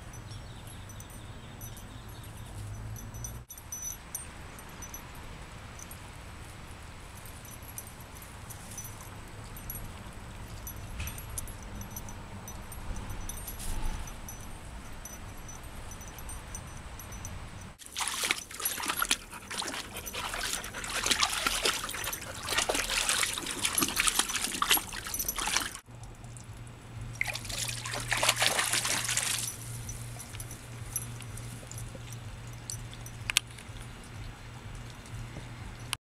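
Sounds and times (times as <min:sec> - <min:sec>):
water spattering and splashing: 0:17.8 - 0:25.8, 0:27.2 - 0:29.6
steady low hum: 0:19.2 - 0:36.0.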